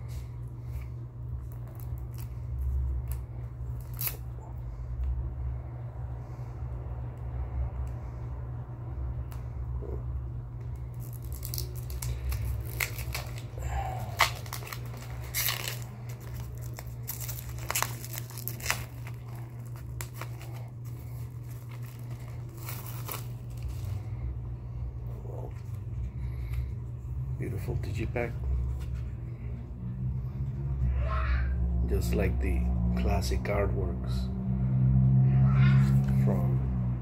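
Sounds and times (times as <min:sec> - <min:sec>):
steady low hum: 0:00.0 - 0:37.0
cellophane crinkling and tearing: 0:01.4 - 0:04.3, 0:10.8 - 0:24.1.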